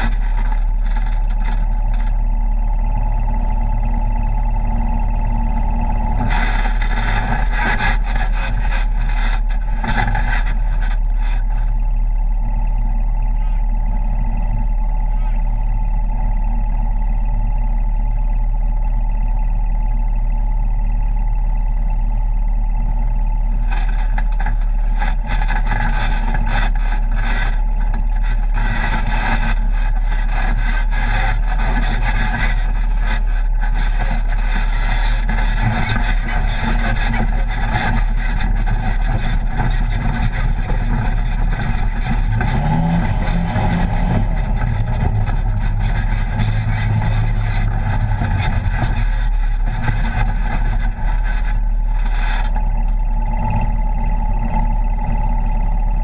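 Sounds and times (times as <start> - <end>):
off-road vehicle engine: 0.0 - 56.0.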